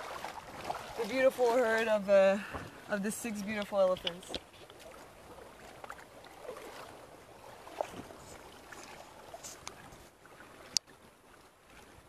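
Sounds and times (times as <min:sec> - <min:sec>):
faint ticks: 0:09.4 - 0:09.8.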